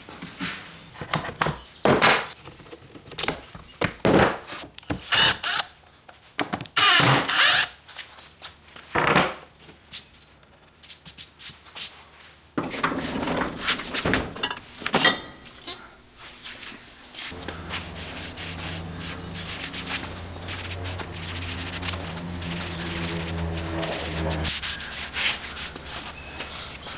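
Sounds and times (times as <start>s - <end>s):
low hum: 16.9s - 26.7s
pad scrubbing steel blade: 17.4s - 25.9s.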